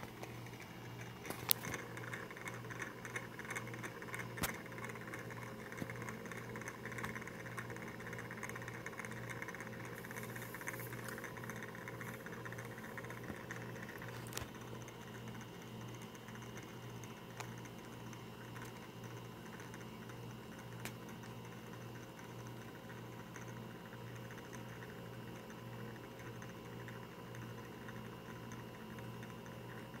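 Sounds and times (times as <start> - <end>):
spinning top pulsing hum: 0.0 - 30.0.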